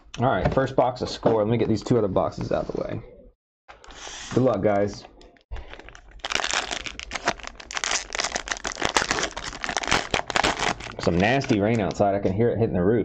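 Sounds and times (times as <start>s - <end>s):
plastic wrapping crinkling and tearing: 5.6s - 12.1s.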